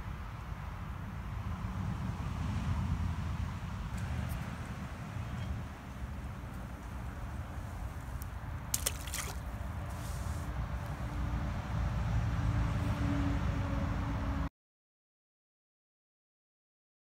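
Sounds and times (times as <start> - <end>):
fishing rig plopping into water: 8.7 - 9.4.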